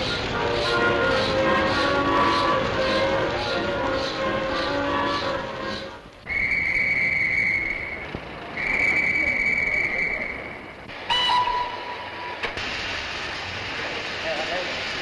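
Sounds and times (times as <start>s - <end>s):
train whistle blasts: 0.0s - 8.0s, 11.1s - 12.2s
station noise: 0.0s - 15.0s.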